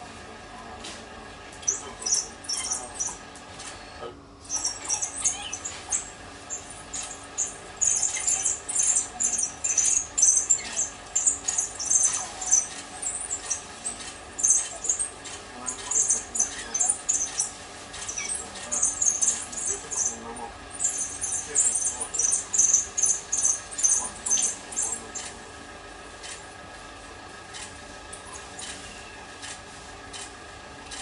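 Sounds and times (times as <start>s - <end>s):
wild dogs twittering: 1.6s - 3.3s, 4.4s - 25.4s.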